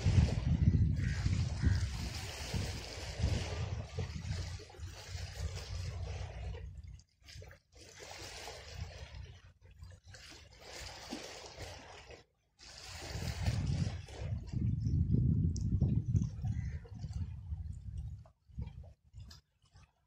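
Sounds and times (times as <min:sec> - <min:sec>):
wind buffeting microphone: 0:00.0 - 0:07.0, 0:12.9 - 0:19.4
sea water lapping against rocks: 0:00.0 - 0:20.0.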